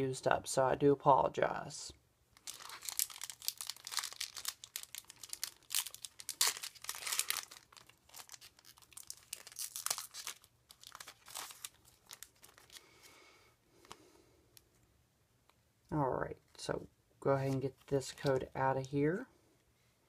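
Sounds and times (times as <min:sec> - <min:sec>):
foil wrapper crinkling and tearing: 0:02.4 - 0:12.9.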